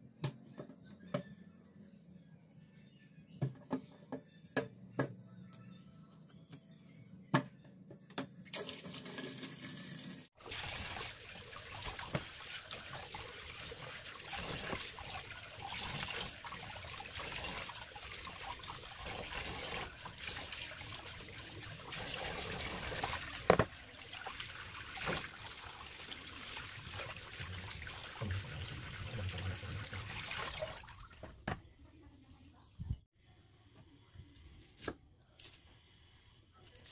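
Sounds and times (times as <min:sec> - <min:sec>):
tap water splashing into sink: 0:11.8 - 0:12.4, 0:23.0 - 0:23.8, 0:24.9 - 0:25.4.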